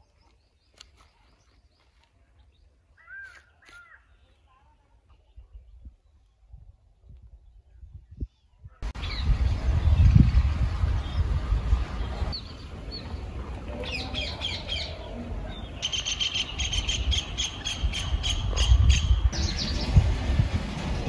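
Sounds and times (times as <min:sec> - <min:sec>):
small birds chirping: 0:00.0 - 0:06.6, 0:12.0 - 0:20.0
low rumble: 0:08.8 - 0:15.7, 0:18.0 - 0:21.0.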